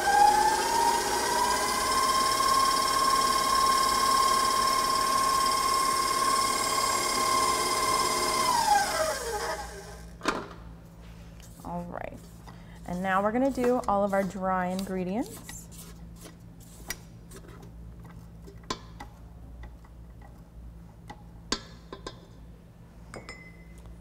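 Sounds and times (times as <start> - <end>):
stand mixer motor whine: 0.0 - 10.1.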